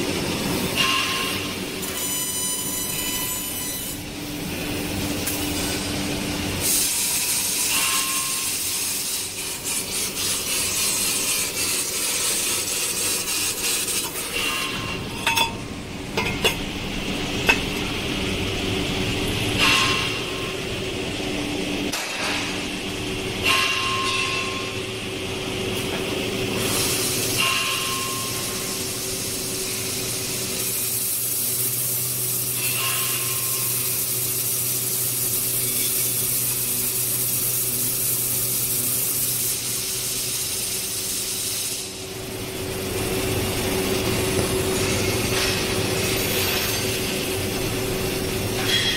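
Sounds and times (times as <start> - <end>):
machine mechanical hum: 0.0 - 48.9
short hissing squeals: 2.0 - 4.0.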